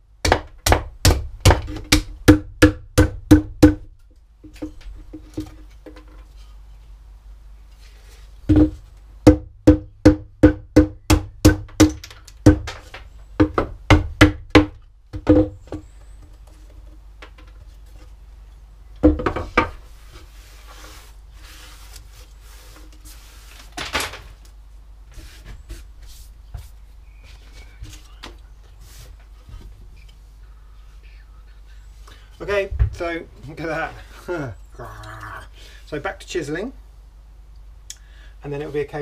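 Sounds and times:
mallet knocking on wood: 0.2s - 3.9s, 8.5s - 12.8s, 13.4s - 15.8s
rustling and scraping wood bits: 12.0s - 13.4s, 15.6s - 30.4s.

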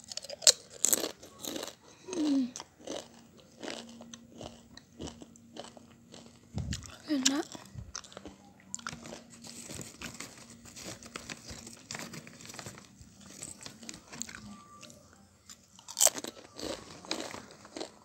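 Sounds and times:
tortilla chips crunching: 0.0s - 14.5s, 15.8s - 18.0s
hand rummaging in plastic bag: 8.9s - 14.5s.

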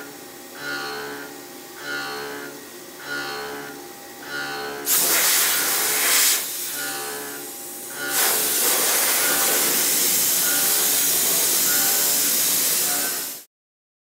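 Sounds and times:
loud steady hiss: 4.8s - 7.0s, 7.8s - 13.5s.

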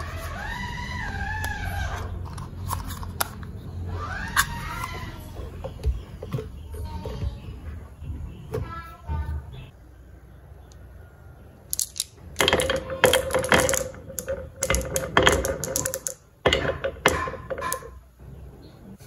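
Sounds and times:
marbles rolling hum: 11.6s - 18.0s
marbles clattering on wooden track: 11.7s - 18.0s.

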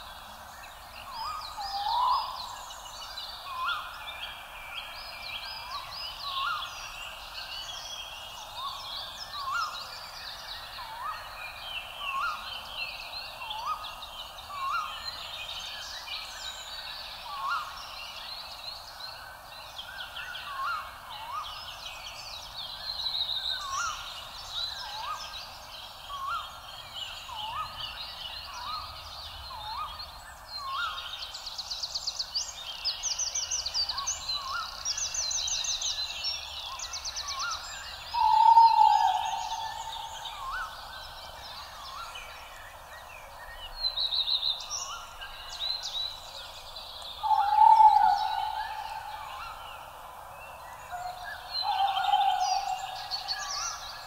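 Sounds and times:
birds chirping: 37.5s - 42.2s, 43.6s - 54.0s.

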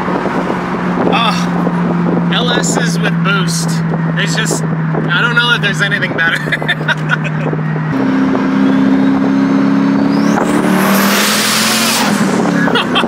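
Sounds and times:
car engine under throttle: 0.0s - 13.0s
turbo whistle rising in pitch: 8.5s - 12.1s.

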